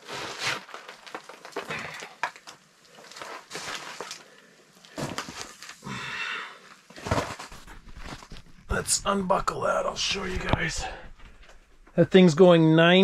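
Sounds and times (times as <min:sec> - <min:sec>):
net rustling: 0:07.0 - 0:08.7.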